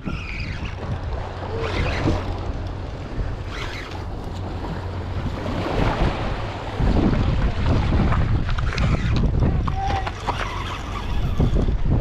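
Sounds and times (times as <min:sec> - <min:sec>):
sea surf washing: 0:00.0 - 0:12.0
wind buffeting microphone: 0:00.0 - 0:12.0.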